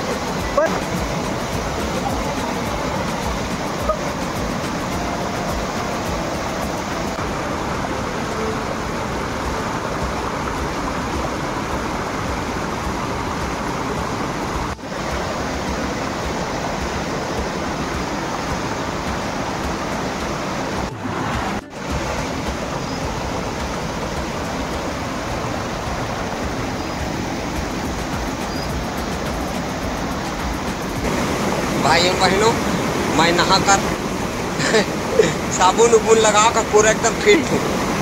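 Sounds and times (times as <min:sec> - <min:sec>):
waterfall pouring over boulders: 0:00.0 - 0:38.0.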